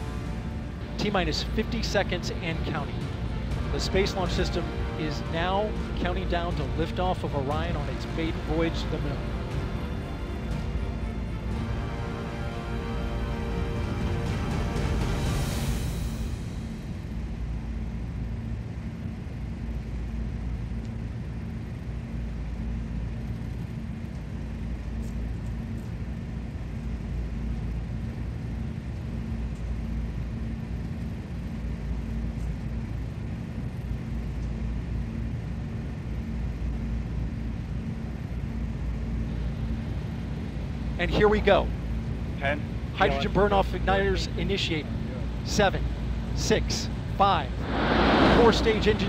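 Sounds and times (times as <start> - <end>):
steady low rumble: 0.0 - 21.6, 46.9 - 49.0
faint pulsing hum: 0.0 - 49.0.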